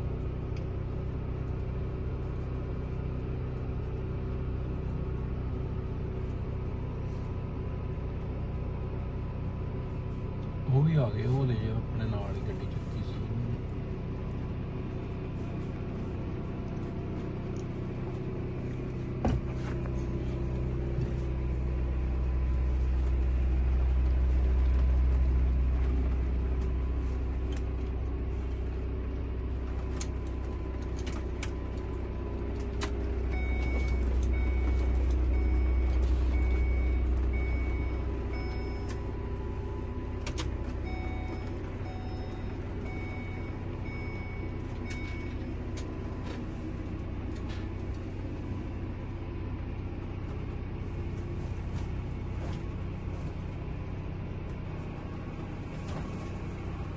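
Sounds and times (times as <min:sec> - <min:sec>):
engine and road rumble: 0:00.0 - 0:56.9.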